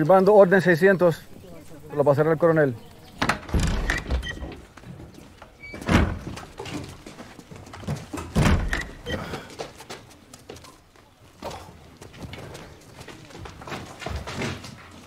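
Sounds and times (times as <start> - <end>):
wooden door thuds: 3.2 - 4.5, 5.8 - 6.4, 8.2 - 9.0
booted footsteps: 4.2 - 15.0.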